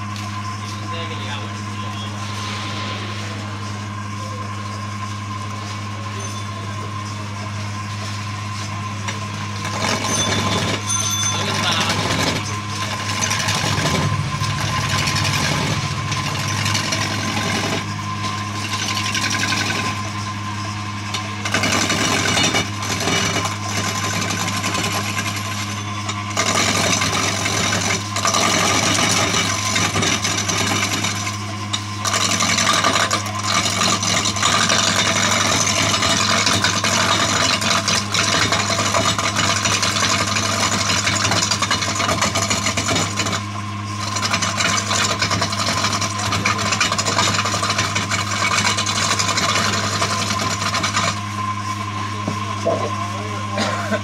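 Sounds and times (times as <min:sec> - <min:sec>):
woodworking machine motor hum: 0:04.0 - 0:54.0
harsh scraping of wood cutting: 0:09.6 - 0:20.4.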